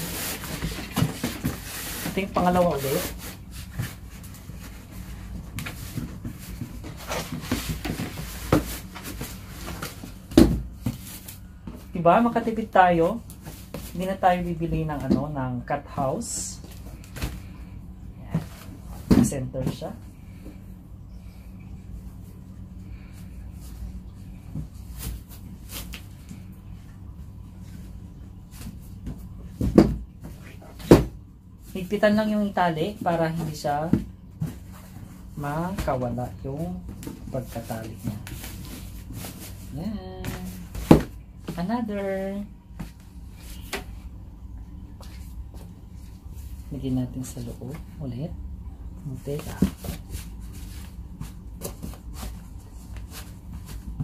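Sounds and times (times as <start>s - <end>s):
t-shirt rustling: 0.0s - 11.7s.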